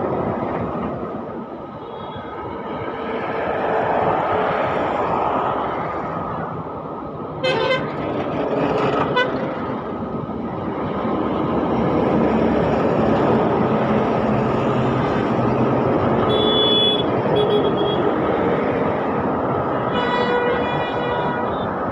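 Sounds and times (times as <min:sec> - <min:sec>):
highway traffic rumble: 0:00.0 - 0:21.9
truck horn blasting: 0:07.4 - 0:07.9, 0:16.2 - 0:18.1, 0:19.9 - 0:21.8
higher horn beeping: 0:16.2 - 0:18.2, 0:19.9 - 0:21.8.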